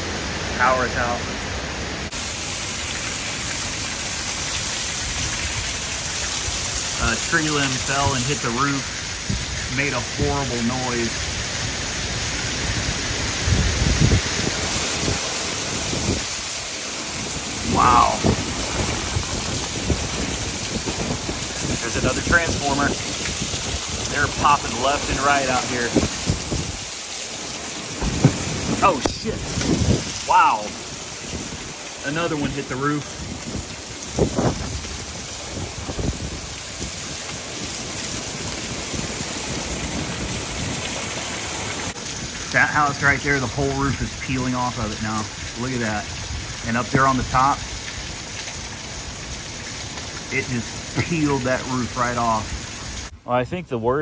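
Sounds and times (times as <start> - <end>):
heavy rain: 0.0 - 53.4
low thunder rumbles: 3.6 - 53.1
strong wind: 4.6 - 53.2
sharp thumps: 28.0 - 28.8.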